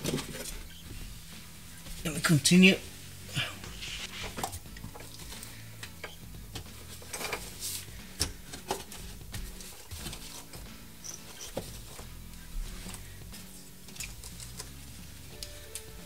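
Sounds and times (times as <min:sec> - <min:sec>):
fabric pads rustling: 0:00.0 - 0:05.7.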